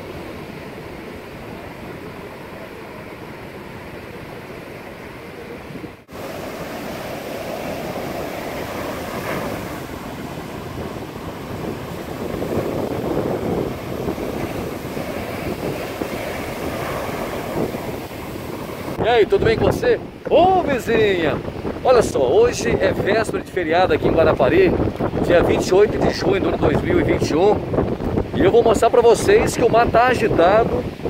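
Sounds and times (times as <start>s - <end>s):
wind buffeting microphone: 5.4s - 31.0s
waves breaking on rocks: 6.0s - 23.9s.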